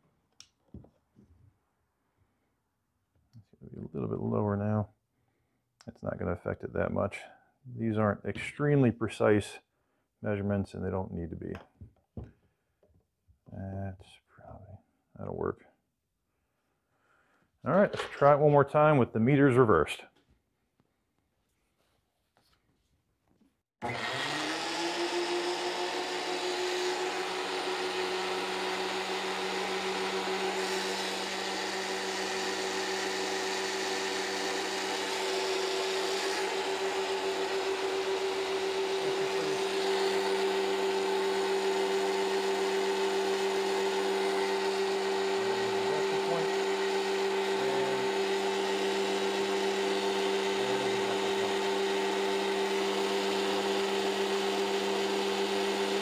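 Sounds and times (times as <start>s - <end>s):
thickness planer motor whining: 23.8s - 56.0s.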